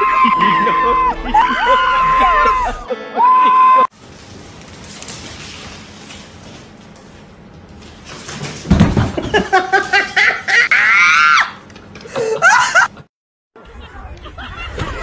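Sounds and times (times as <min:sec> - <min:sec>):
high-pitched voice shrieking: 0:00.0 - 0:03.9.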